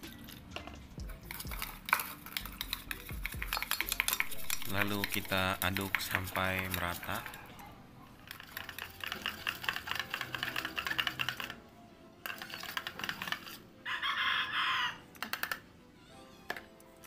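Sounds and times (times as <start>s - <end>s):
stick scraping inside metal pot: 1.1s - 7.6s, 8.2s - 11.6s, 12.2s - 13.7s.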